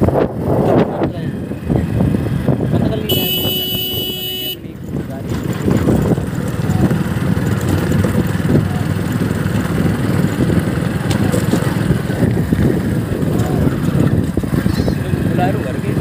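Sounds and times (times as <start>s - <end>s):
motorcycle engine rumbling: 0.0s - 16.0s.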